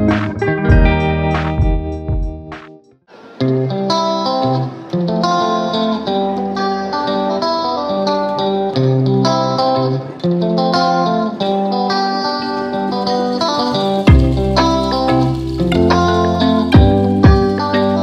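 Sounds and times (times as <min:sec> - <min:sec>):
bass notes: 0:00.0 - 0:02.7, 0:14.0 - 0:18.0
plucked guitar melody: 0:00.0 - 0:18.0.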